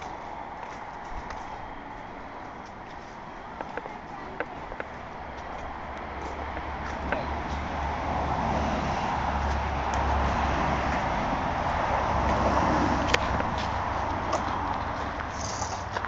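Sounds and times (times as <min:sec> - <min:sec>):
car tyres passing: 0:04.4 - 0:16.0.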